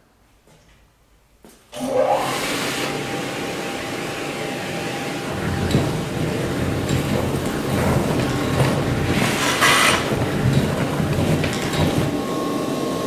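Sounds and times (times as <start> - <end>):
vacuum cleaner running: 1.8 - 13.0.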